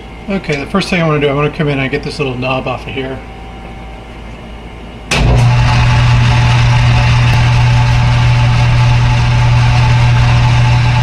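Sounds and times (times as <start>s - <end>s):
metal lathe motor humming: 5.2s - 11.0s.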